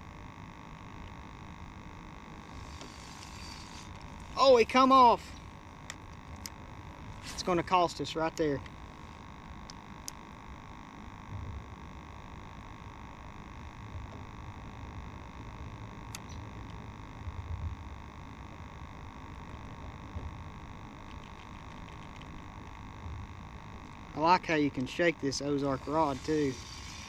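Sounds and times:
faint hum: 0.0 - 27.0.

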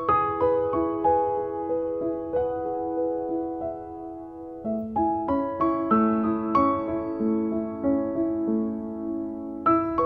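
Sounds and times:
gentle piano melody: 0.0 - 10.0.

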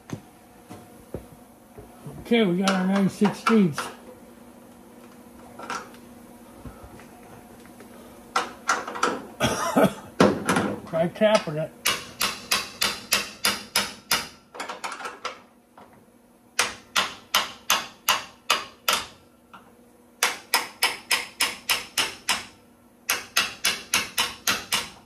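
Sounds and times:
hammer tapping on metal wrench: 23.1 - 25.0.

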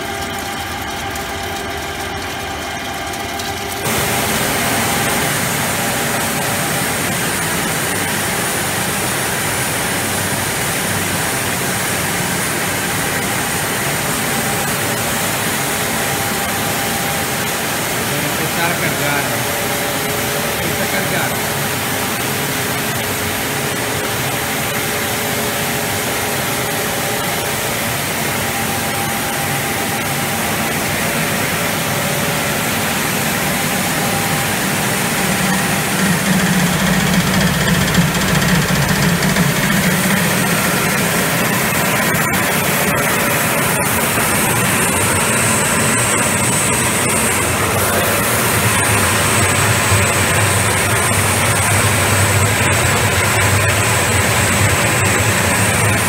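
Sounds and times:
machinery drone: 0.0 - 56.0.

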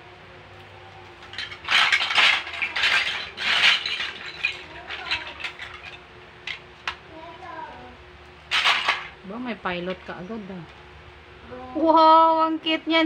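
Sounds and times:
plastic bricks clattering: 1.2 - 6.6, 8.5 - 9.2.

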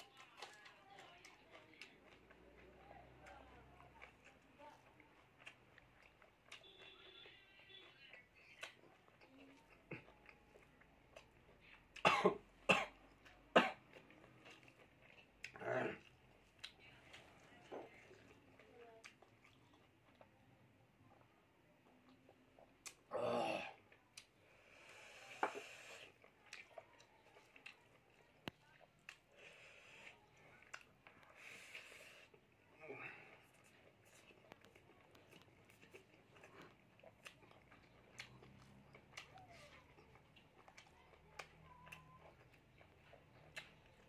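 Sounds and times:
mouth chewing food: 0.0 - 44.0
man sipping water: 24.7 - 26.2.

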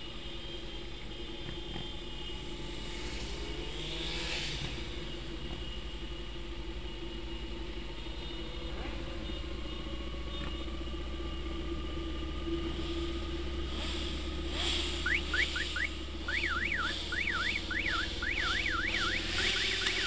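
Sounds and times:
motorcycle engine hum: 0.0 - 20.0
road and wind noise: 0.0 - 20.0
siren whooping and warbling: 14.9 - 20.0.

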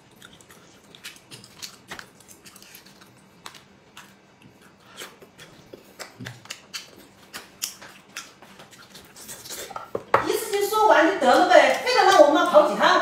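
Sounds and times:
crunchy chewing: 0.0 - 9.8.

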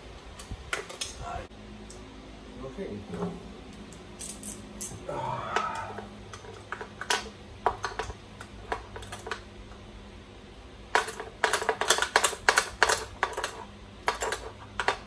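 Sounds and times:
metal tools clinking on metal: 4.2 - 5.0.

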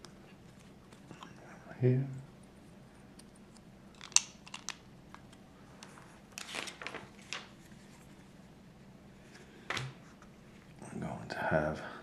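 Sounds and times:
plastic bricks clicking: 3.9 - 4.8
plastic pieces rattling: 3.9 - 4.8.

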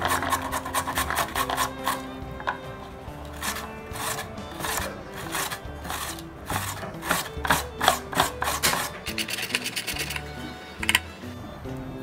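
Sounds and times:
potato grated on metal grater: 0.0 - 2.0, 3.4 - 10.3
background music: 0.0 - 12.0.

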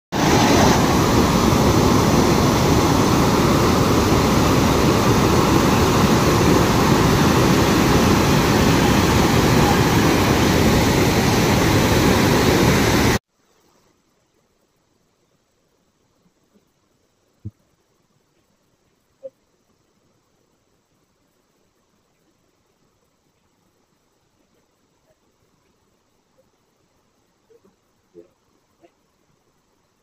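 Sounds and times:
water rushing over rocks: 0.1 - 13.2.

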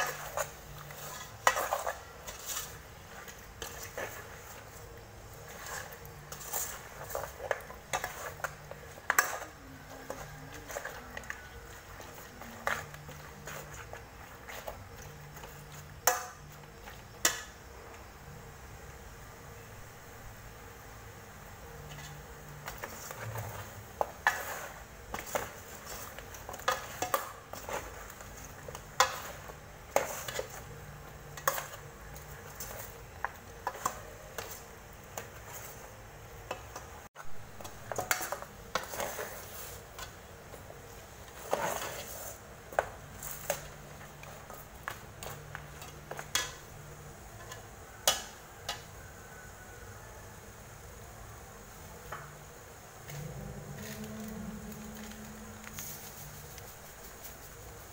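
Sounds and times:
metal ladle scraping metal pot: 41.3 - 43.7.

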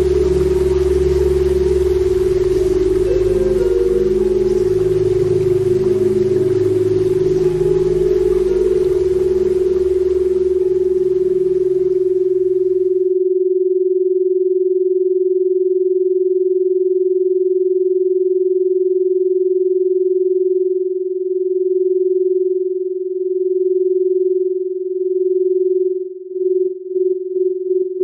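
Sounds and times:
steady pure tone: 0.0 - 13.2.

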